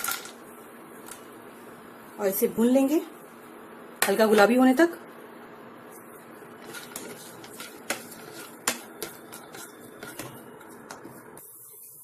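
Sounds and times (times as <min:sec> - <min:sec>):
spatula clicking and tapping: 0:06.6 - 0:11.4.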